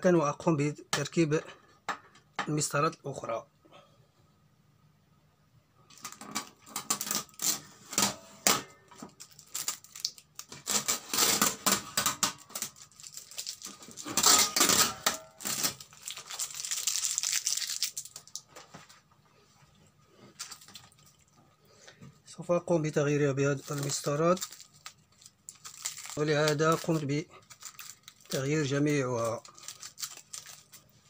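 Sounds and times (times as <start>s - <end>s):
adhesive tape peeling and tearing: 6.0s - 7.6s, 9.3s - 11.8s, 12.4s - 18.1s.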